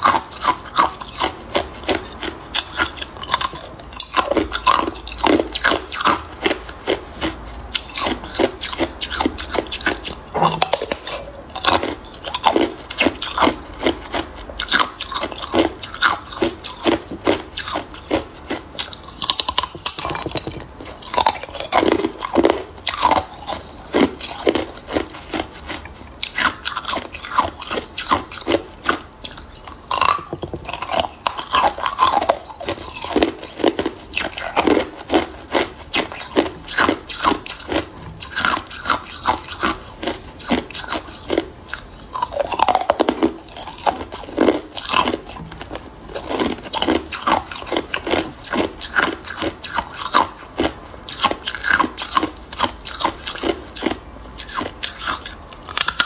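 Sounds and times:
ice cubes crunching and cracking: 0:00.0 - 0:56.0.

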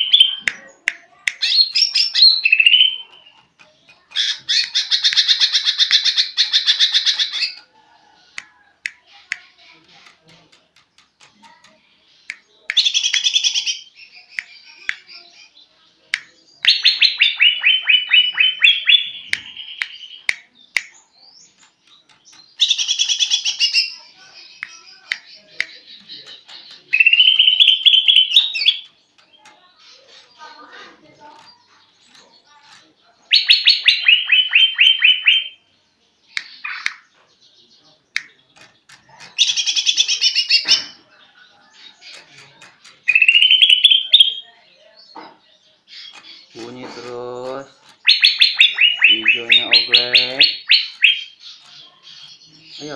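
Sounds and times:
bird chirping: 0:00.0 - 0:52.9
bird singing high repeated notes: 0:01.4 - 0:03.4, 0:22.6 - 0:28.9, 0:43.1 - 0:44.5, 0:47.7 - 0:52.9.

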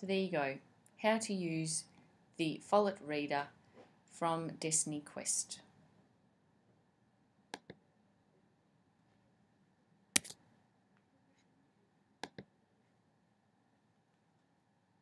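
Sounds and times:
computer mouse clicks: 0:07.5 - 0:07.8, 0:10.2 - 0:10.4, 0:12.2 - 0:12.5.

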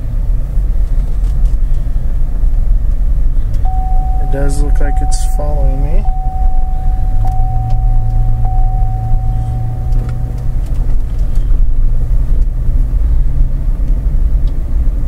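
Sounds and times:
car engine and road noise: 0:00.0 - 0:15.0
thin steady whine: 0:03.6 - 0:11.1.

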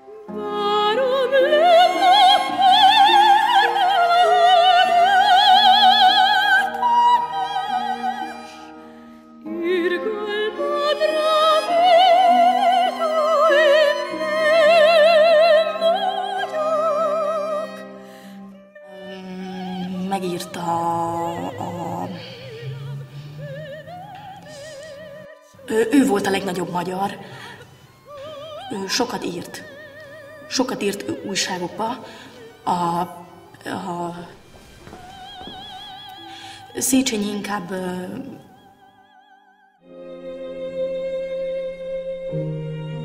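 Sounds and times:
sustained accompaniment: 0:00.0 - 0:39.0
lower quieter music: 0:00.0 - 0:39.2, 0:39.8 - 0:43.0
operatic singing high voice: 0:09.5 - 0:39.0.

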